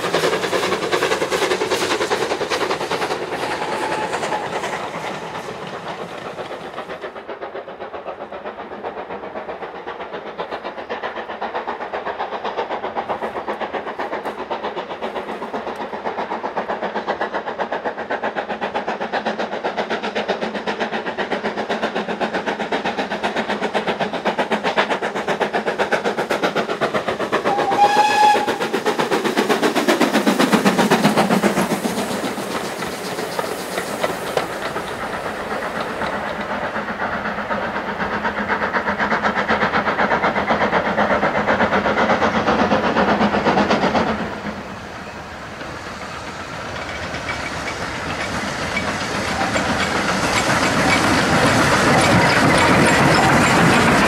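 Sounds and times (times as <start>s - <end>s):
steam locomotive exhaust beats: 0.0s - 54.0s
train wheels clickety-clack: 0.0s - 54.0s
steam whistle: 27.4s - 28.7s.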